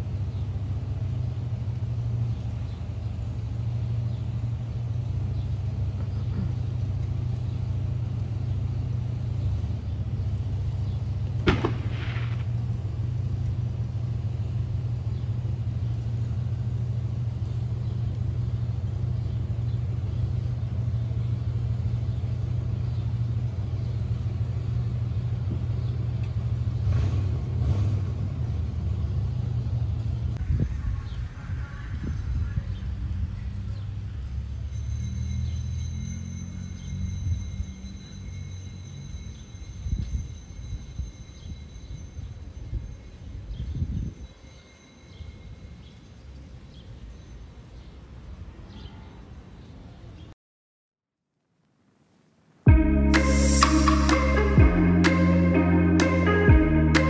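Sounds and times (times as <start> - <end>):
low rumble: 29.8 - 34.5, 52.7 - 57.0.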